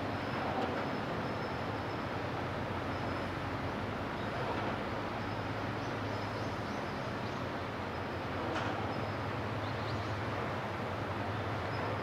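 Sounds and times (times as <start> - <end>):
continuous rushing noise: 0.0 - 12.0
ship diesel engines droning: 0.0 - 12.0.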